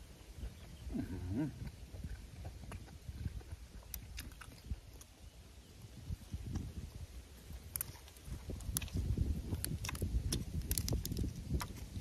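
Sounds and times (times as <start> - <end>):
person chewing wetly: 0.0 - 12.0
person humming mmm: 0.9 - 1.7.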